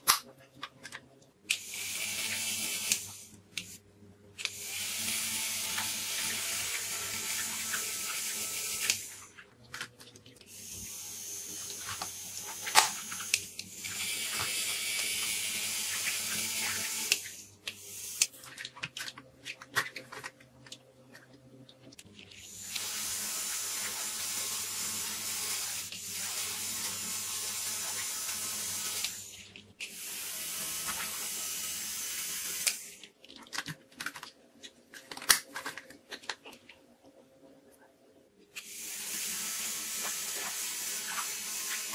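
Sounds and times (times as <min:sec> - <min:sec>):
small electric motor hum: 0:01.5 - 0:03.8, 0:04.4 - 0:09.3, 0:10.5 - 0:18.4, 0:22.4 - 0:33.0, 0:38.6 - 0:41.9.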